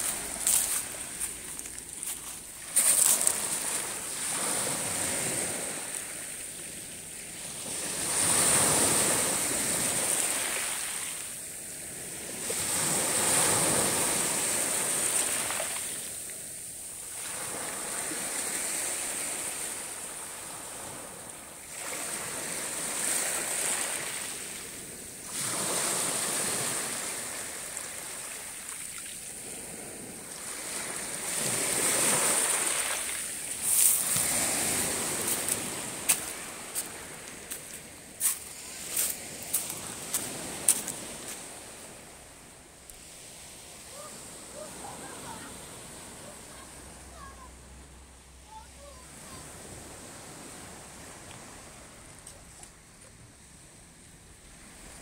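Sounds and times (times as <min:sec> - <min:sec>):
waves washing over pebble beach: 0:00.0 - 0:42.0.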